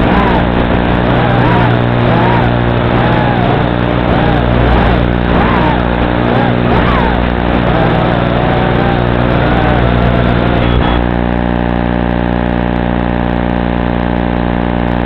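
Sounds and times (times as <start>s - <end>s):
drone motors whining: 0.0s - 11.4s
electrical buzzing hum: 0.0s - 15.0s.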